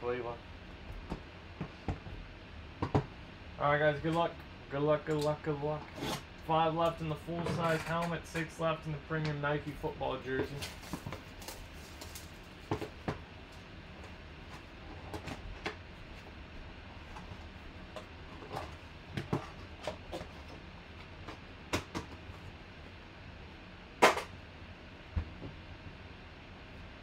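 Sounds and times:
cardboard and packaging rustling: 10.3 - 16.3.

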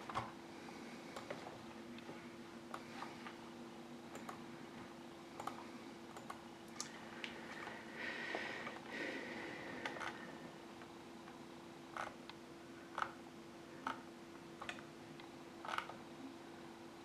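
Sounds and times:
steady low hum: 0.0 - 17.0
keyboard and mouse clicks: 4.1 - 4.4, 5.4 - 6.9.

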